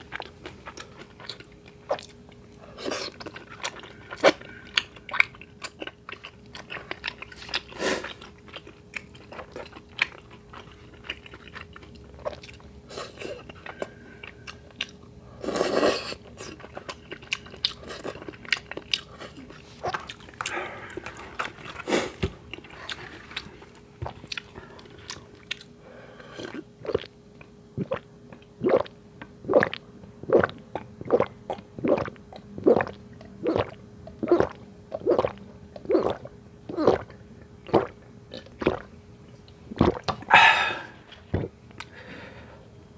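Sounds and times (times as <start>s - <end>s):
biting and chewing fried food: 0.0s - 42.0s
gulps of swallowing a drink: 26.3s - 27.1s, 27.8s - 38.9s, 39.7s - 41.6s.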